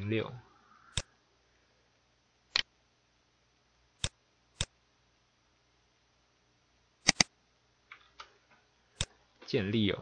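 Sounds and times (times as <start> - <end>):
computer mouse button clicking: 7.0 - 7.3.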